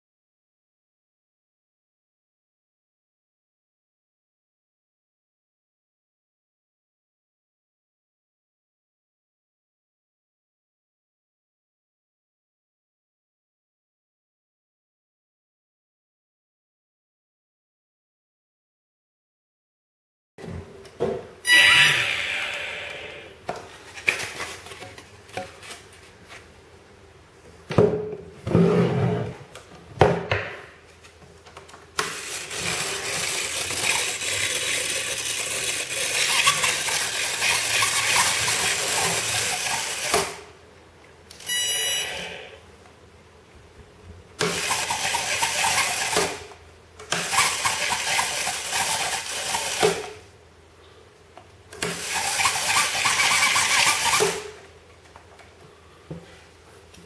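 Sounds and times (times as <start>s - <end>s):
small propeller motor whirring: 32.2s - 40.1s.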